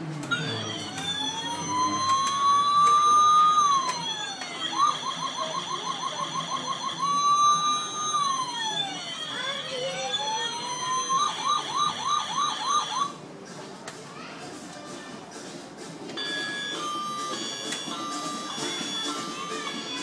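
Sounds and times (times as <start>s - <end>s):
toy electronic siren wailing and yelping: 0.3s - 13.2s.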